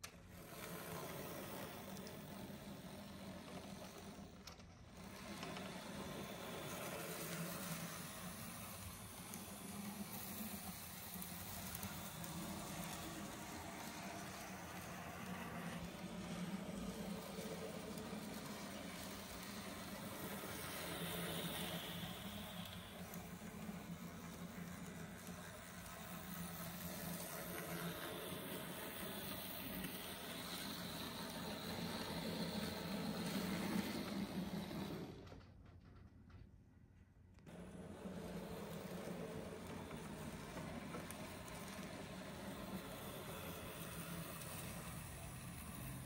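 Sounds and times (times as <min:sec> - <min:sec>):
small motor whirring: 0:00.0 - 0:35.4, 0:37.5 - 0:46.0
low hiss: 0:00.1 - 0:36.0
wheels rattling on rails: 0:00.4 - 0:35.4, 0:37.5 - 0:46.0.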